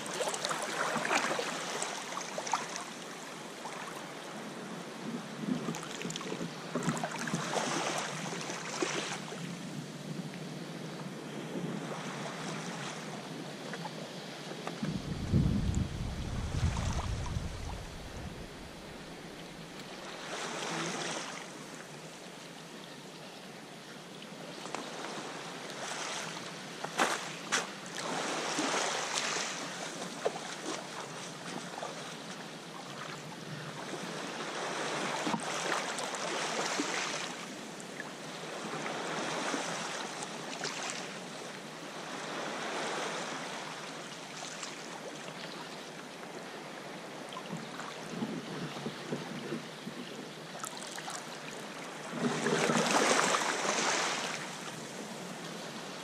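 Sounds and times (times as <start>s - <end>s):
water splashing around kayak: 0.0s - 4.1s, 5.4s - 9.4s, 14.6s - 21.7s, 24.8s - 45.6s, 47.3s - 56.0s.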